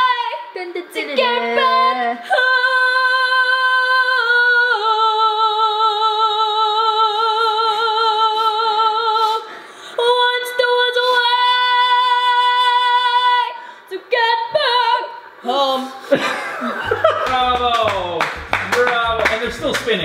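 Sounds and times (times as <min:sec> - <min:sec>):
girl singing a cappella: 0:00.0 - 0:15.9.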